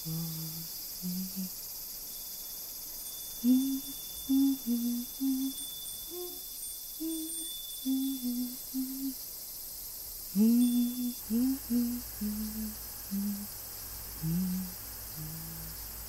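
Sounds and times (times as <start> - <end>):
person humming slow tune: 0.0 - 1.6, 3.4 - 9.2, 10.4 - 13.6, 14.2 - 16.0
low steady hum: 0.0 - 1.7, 3.1 - 9.2, 10.3 - 16.0.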